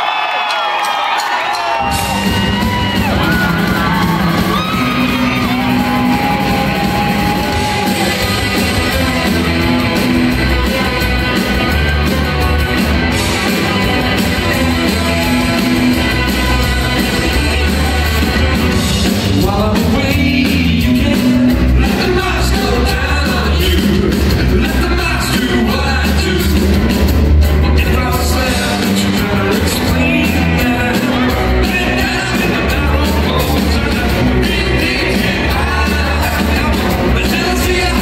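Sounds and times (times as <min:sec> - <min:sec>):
live rock band: 0:00.1 - 0:38.0
person singing: 0:13.5 - 0:26.8, 0:27.6 - 0:38.0.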